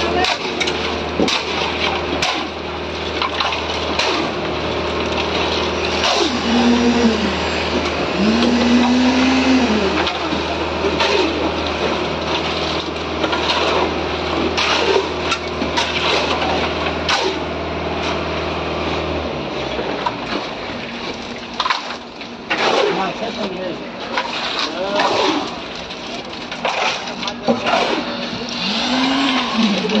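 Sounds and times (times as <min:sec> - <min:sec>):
wet concrete scraping: 0:00.0 - 0:18.3, 0:19.6 - 0:30.0
site machinery humming: 0:00.0 - 0:30.0
person calling out: 0:06.3 - 0:07.4.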